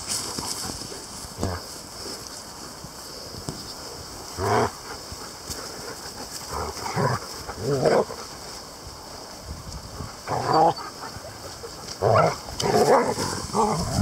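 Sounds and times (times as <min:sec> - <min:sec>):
dogs growling: 0:06.4 - 0:08.2, 0:10.2 - 0:14.0.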